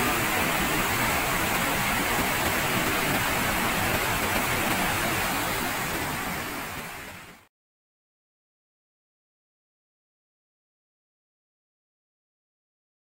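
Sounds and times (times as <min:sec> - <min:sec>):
waterfall and river rushing: 0:00.0 - 0:07.5.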